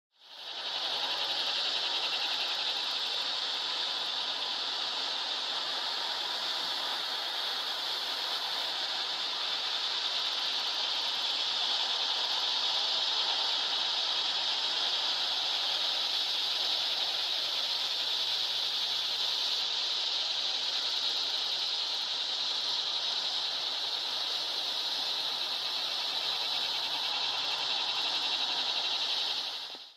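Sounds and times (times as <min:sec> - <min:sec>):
insect chorus buzzing: 0:00.2 - 0:29.9.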